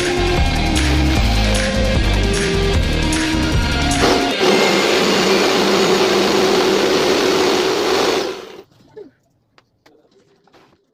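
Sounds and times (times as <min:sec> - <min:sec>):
music with a heavy beat: 0:00.0 - 0:05.9
jigsaw cutting cardboard: 0:04.0 - 0:08.6.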